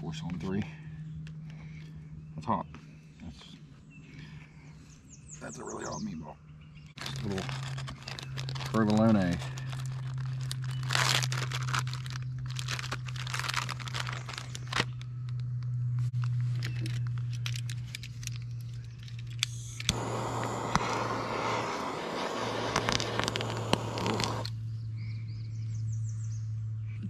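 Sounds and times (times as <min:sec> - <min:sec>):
constant low hum: 0:00.0 - 0:27.0
plastic packaging crinkling and tearing: 0:07.0 - 0:15.4, 0:22.6 - 0:24.5
loud even hiss: 0:19.9 - 0:24.5.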